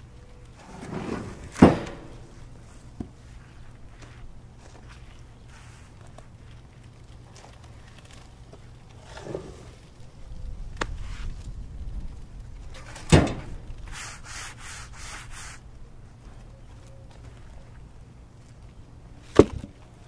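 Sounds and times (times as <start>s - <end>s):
rubbing on rough wood: 13.8s - 15.7s.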